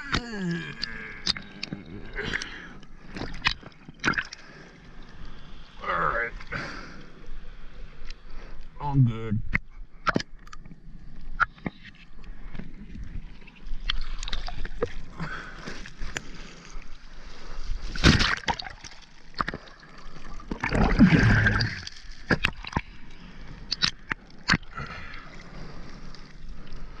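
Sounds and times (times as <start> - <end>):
seawater sloshing and gurgling: 11.4 - 27.0
loud water splashes: 20.6 - 22.6.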